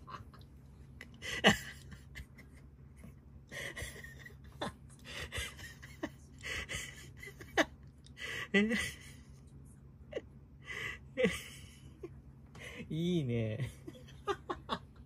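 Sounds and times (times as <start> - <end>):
person laughing breathily: 1.0 - 9.4, 10.1 - 12.9.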